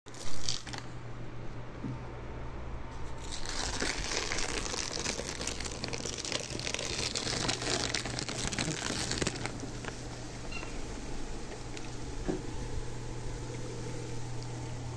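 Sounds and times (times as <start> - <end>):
plastic sheet crinkling: 0.1 - 1.0, 3.2 - 10.5.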